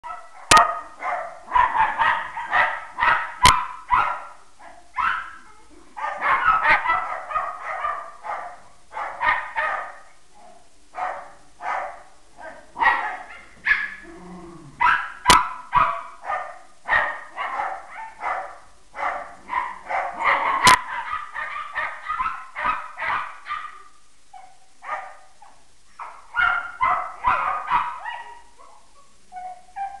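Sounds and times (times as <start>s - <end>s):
small dogs barking and yipping: 0.0s - 14.1s, 14.7s - 30.0s
dog growling low: 14.0s - 14.8s.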